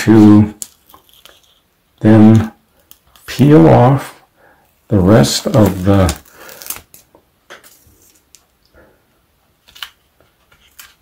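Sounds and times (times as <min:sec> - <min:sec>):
paper liner peeling crinkle: 0:00.6 - 0:01.7, 0:02.8 - 0:03.5, 0:04.9 - 0:08.4.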